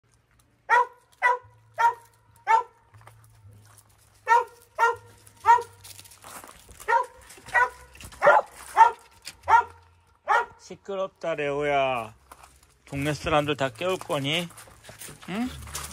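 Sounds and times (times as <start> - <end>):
dog barking: 0.7 - 2.8, 4.2 - 5.8, 6.8 - 10.6.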